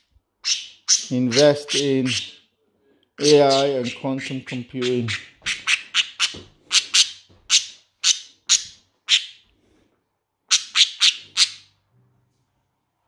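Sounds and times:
budgerigar chirping: 0:00.4 - 0:02.5, 0:03.2 - 0:09.4, 0:10.5 - 0:11.8.

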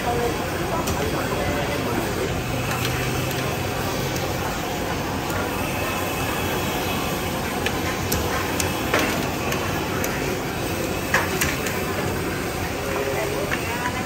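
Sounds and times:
steady rush of street noise: 0:00.0 - 0:14.0.

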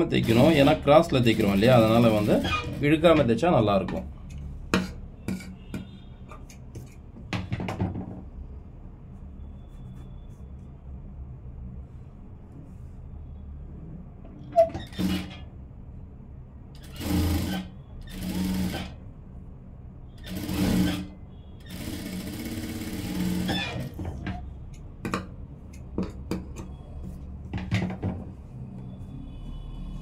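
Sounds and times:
sewing machine stitching: 0:00.0 - 0:03.3, 0:14.6 - 0:15.5, 0:16.8 - 0:19.0, 0:20.2 - 0:24.4.

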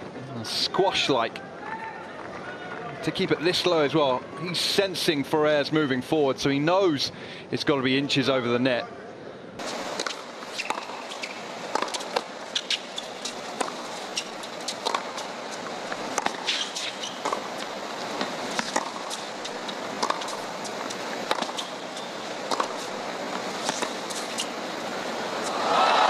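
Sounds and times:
murmur of stadium crowd: 0:00.0 - 0:10.0, 0:13.2 - 0:26.0
tennis ball hitting rackets: 0:09.6 - 0:25.6.

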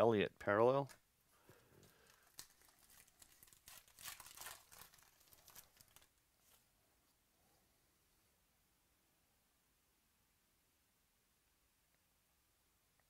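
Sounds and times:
wrapper crinkling and tearing: 0:01.8 - 0:06.6.

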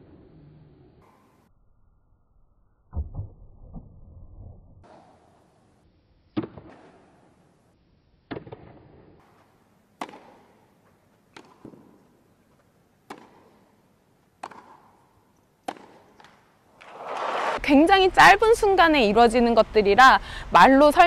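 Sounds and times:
tennis ball struck with rackets: 0:06.4 - 0:07.2, 0:08.3 - 0:17.5.

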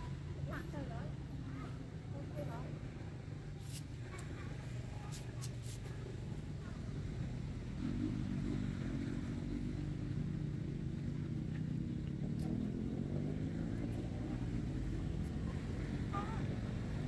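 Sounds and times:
vehicle engine running: 0:06.2 - 0:17.0.

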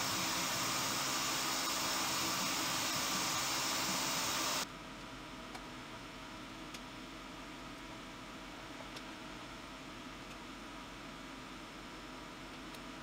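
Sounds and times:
air blast hissing: 0:00.0 - 0:04.6
machine hum: 0:00.0 - 0:04.6.

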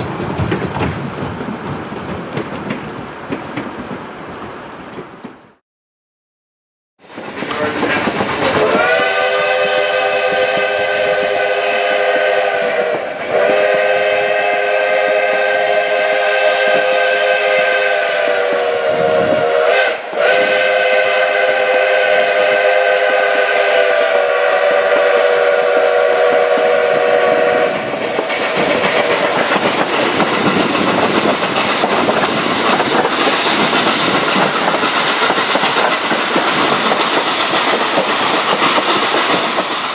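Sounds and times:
train wheels clattering on rails: 0:00.0 - 0:05.4, 0:07.0 - 0:11.4, 0:26.2 - 0:39.9
steam locomotive whistle: 0:08.4 - 0:28.6.

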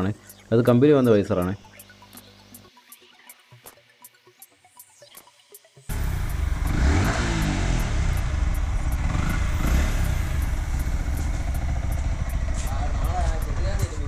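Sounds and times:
motorcycle engine revving: 0:05.9 - 0:14.0.

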